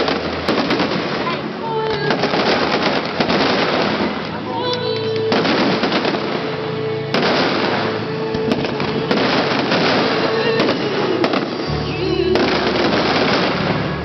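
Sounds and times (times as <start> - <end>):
fireworks crackling and bursting: 0.0 - 14.0
music playing: 0.0 - 14.0.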